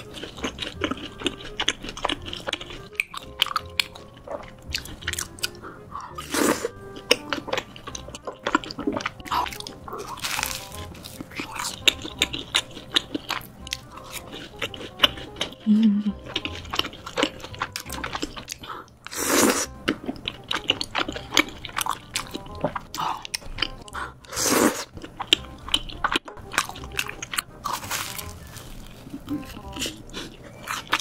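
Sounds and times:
crunching and chewing: 0.0 - 31.0
loud slurping: 24.3 - 24.9.

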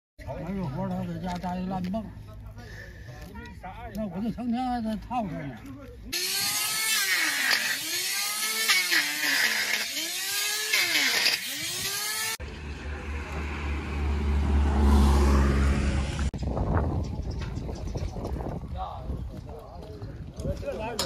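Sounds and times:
angle grinder whining: 6.1 - 13.1.

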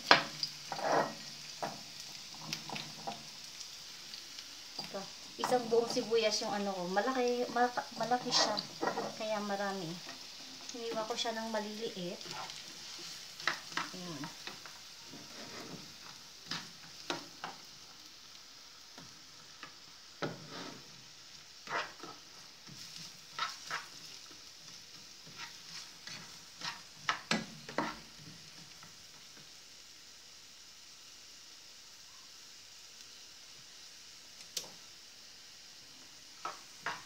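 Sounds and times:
onion sizzling in oil: 0.0 - 37.0
spatula scraping a pan: 0.1 - 3.3, 7.1 - 17.7, 19.7 - 28.8.

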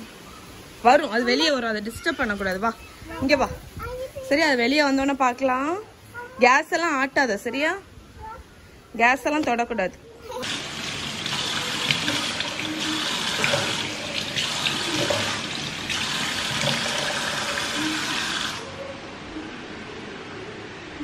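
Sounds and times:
water splashing on face: 10.4 - 18.6.

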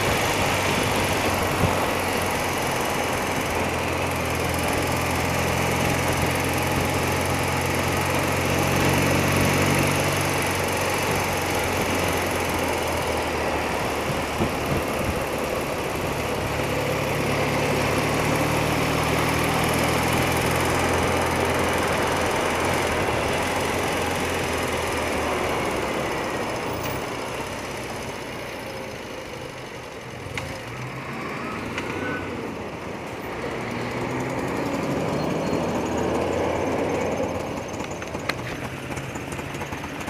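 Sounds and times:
motorcycle engine running: 0.0 - 30.8, 32.5 - 40.0
wind and road noise: 0.0 - 40.0.

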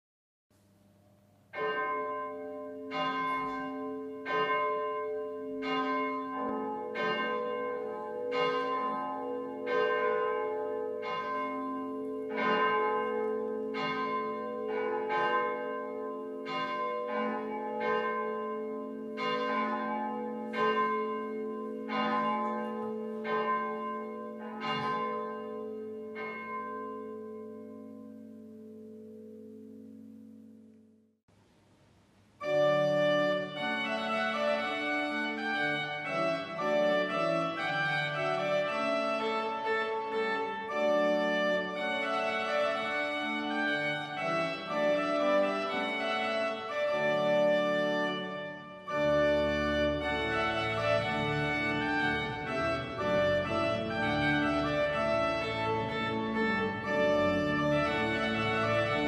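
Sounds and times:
church bells tolling: 1.5 - 30.8, 32.4 - 59.0.

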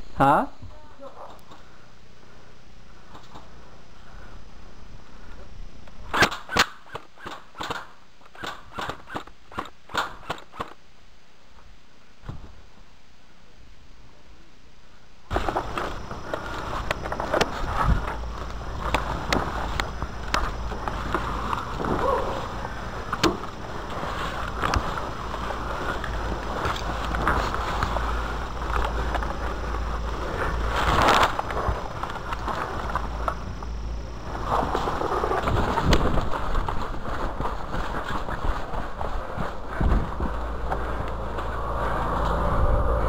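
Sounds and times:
airsoft gun shots: 6.1 - 10.8
gear rustling through weeds: 15.3 - 43.0
low rumble: 15.3 - 43.0.

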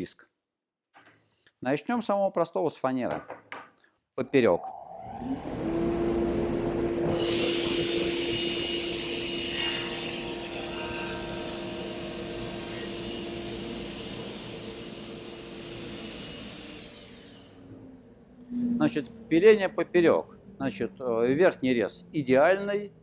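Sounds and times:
table saw running: 4.9 - 17.6
saw cutting plywood: 5.3 - 17.5.

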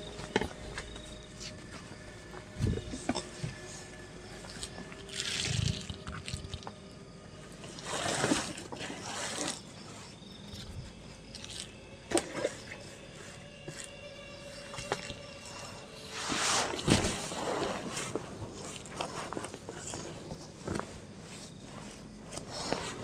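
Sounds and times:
nylon sleeping bag rustling: 7.6 - 9.6, 16.1 - 23.0.

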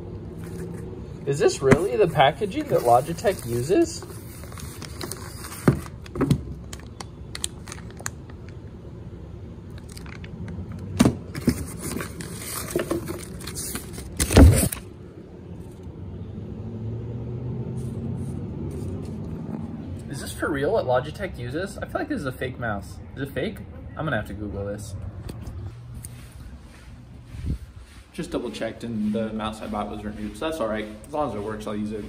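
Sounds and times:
cardboard and plastic bag rustling: 0.3 - 8.1, 11.2 - 14.9.

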